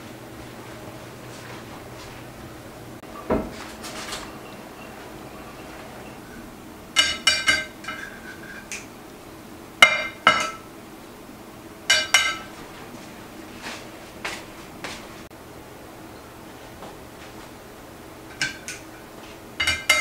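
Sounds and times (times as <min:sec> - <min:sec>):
metal utensil clinking on dish: 0:07.0 - 0:08.9, 0:09.8 - 0:10.7, 0:11.9 - 0:12.5, 0:19.6 - 0:20.0.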